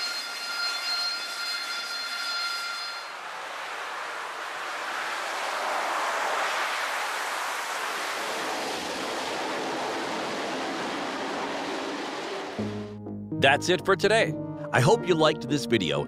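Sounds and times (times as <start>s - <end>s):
jet engine roar: 3.1s - 12.6s.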